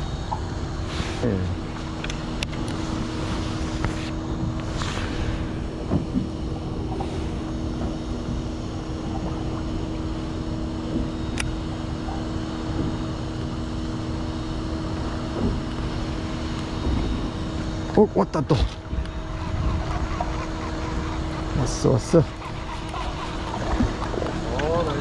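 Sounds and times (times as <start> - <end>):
mechanical hum: 0.0 - 25.0.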